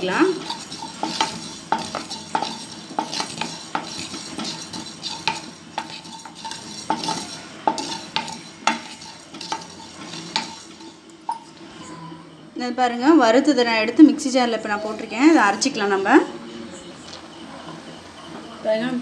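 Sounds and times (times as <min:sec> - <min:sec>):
spatula scraping a metal pan: 0:00.0 - 0:12.0.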